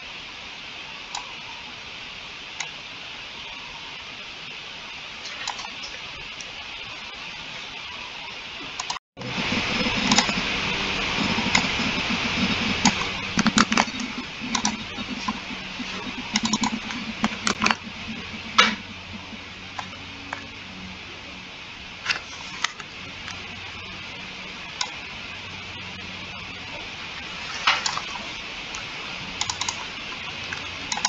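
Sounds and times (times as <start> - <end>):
steady hiss: 0.0 - 31.0
mouse clicks: 5.4 - 5.8, 11.4 - 15.4, 16.0 - 17.8, 29.4 - 29.9, 30.5 - 31.0
keyboard keystrokes: 29.4 - 29.8.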